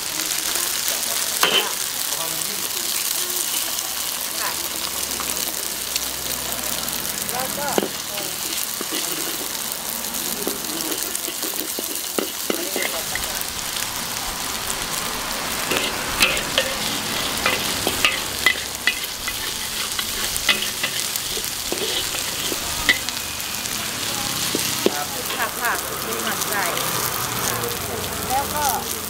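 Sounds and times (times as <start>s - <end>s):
food sizzling in oil: 0.0s - 29.0s
spatula scraping metal wok: 1.4s - 2.0s, 7.0s - 27.5s.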